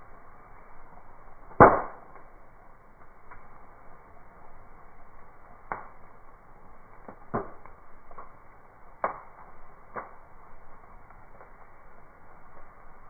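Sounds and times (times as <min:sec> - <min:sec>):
campfire crackling: 0:00.0 - 0:13.0
soft steady hiss: 0:00.0 - 0:13.0
sharp fire pops: 0:01.0 - 0:03.8, 0:05.4 - 0:13.0.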